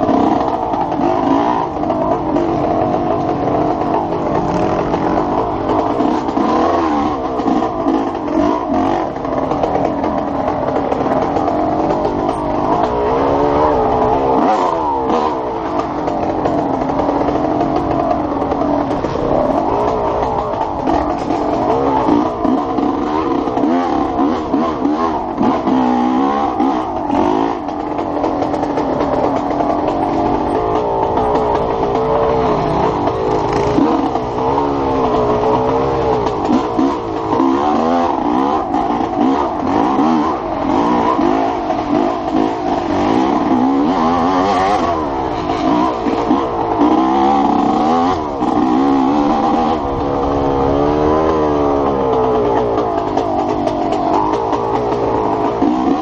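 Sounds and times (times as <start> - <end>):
motorcycle clattering on dirt trail: 0.0 - 56.0
motorcycle engine revving: 0.0 - 56.0.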